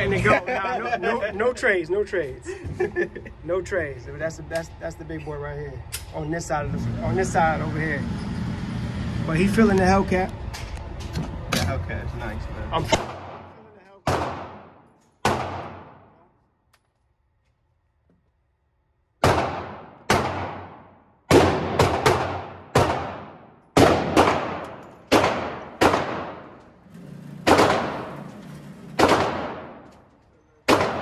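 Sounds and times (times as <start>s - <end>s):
handgun shots echoing indoors: 14.1s - 16.1s, 19.2s - 26.6s, 27.4s - 28.2s, 29.0s - 29.9s, 30.6s - 31.0s.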